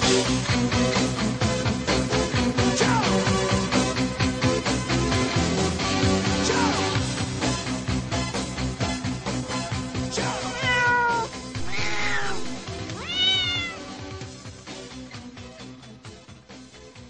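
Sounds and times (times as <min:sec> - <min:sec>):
backing music: 0:00.0 - 0:17.0
cat meow keyboard notes: 0:10.5 - 0:14.0.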